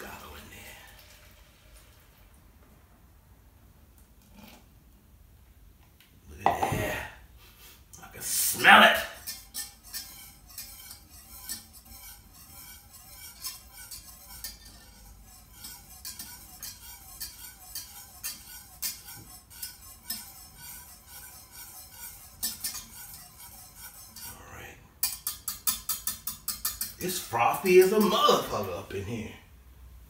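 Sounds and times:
wire whisk beating in a saucepan: 8.5s - 24.4s, 25.0s - 28.7s.

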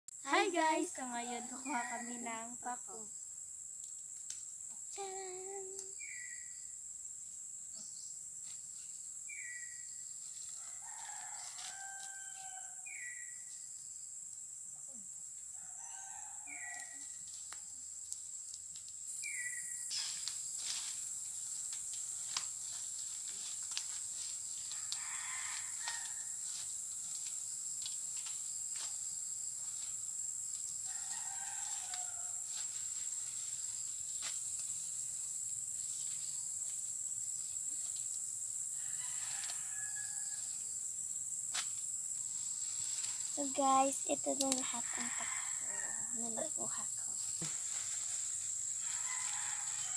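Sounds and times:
high insect drone: 0.1s - 49.9s
roosters crowing: 10.4s - 13.3s, 15.5s - 17.2s, 24.2s - 26.6s, 30.7s - 32.8s, 38.6s - 40.8s, 44.7s - 46.2s, 48.6s - 49.9s
rustling and snapping undergrowth: 17.2s - 29.0s, 29.6s - 36.8s, 44.3s - 44.7s.

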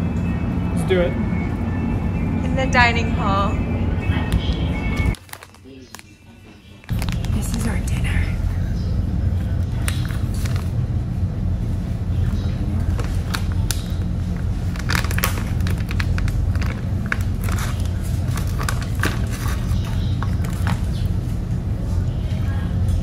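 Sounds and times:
low drone of ship engines: 0.0s - 5.2s, 6.9s - 23.0s
plastic bag crinkling: 5.2s - 8.0s, 12.8s - 21.1s.

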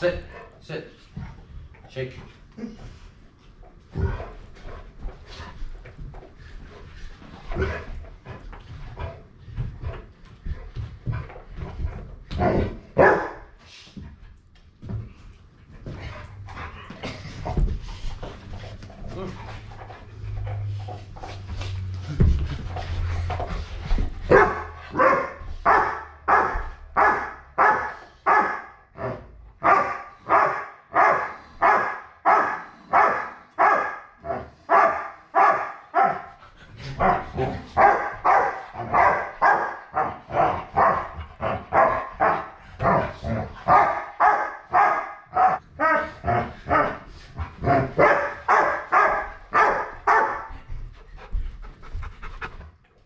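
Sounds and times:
dog barking: 13.0s - 13.4s, 24.3s - 28.8s, 29.6s - 36.3s, 37.0s - 40.2s, 40.8s - 42.6s, 43.7s - 47.0s, 47.6s - 50.5s.

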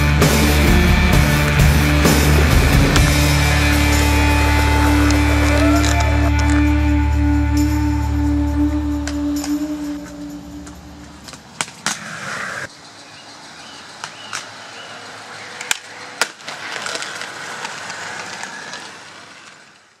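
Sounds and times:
skate wheels rolling and scraping: 0.0s - 6.8s, 9.4s - 20.0s
soundtrack music: 0.0s - 11.0s.

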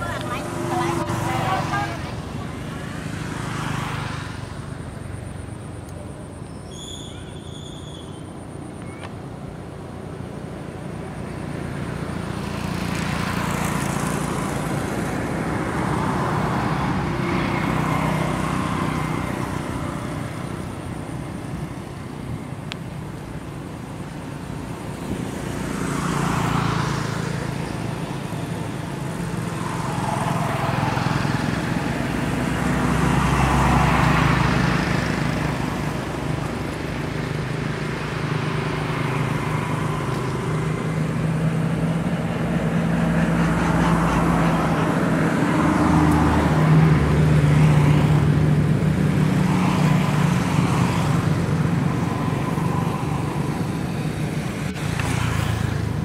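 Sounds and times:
vehicles passing: 0.0s - 56.0s.

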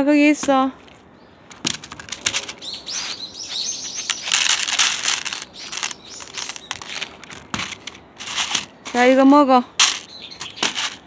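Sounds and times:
crackling and rustling handling noise: 0.4s - 11.0s
short high bird chirps: 2.6s - 4.5s, 5.4s - 6.8s.

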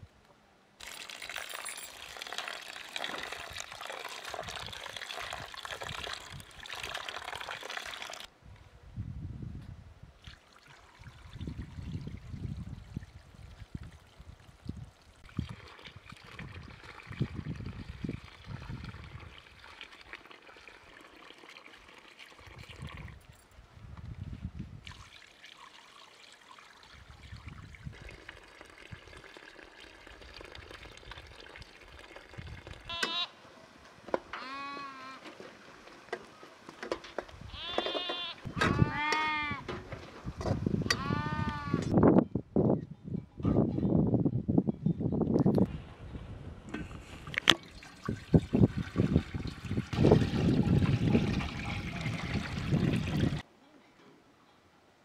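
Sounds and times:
water trickling and splashing: 0.8s - 8.3s, 10.2s - 33.3s, 46.8s - 53.5s
lamb bleating: 32.9s - 33.4s, 34.4s - 35.2s, 37.5s - 39.6s, 40.9s - 41.9s.

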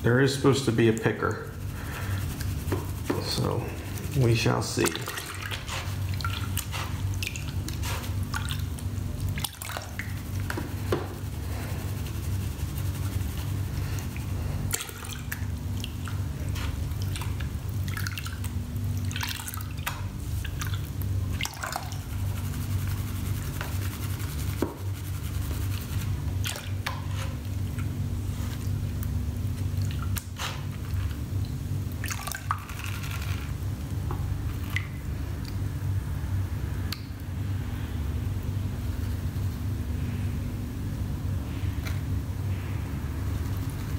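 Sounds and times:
water sloshing and splashing: 2.3s - 11.3s, 11.9s - 22.3s, 25.7s - 33.6s, 34.3s - 35.7s.

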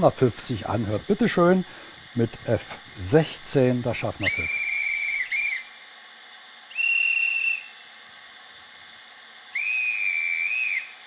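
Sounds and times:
model train whistle from small speaker: 4.2s - 5.7s, 6.7s - 7.8s, 9.5s - 11.0s.

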